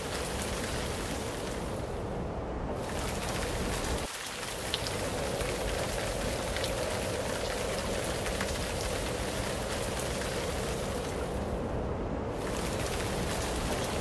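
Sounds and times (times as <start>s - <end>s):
steady rain falling: 0.0s - 14.0s.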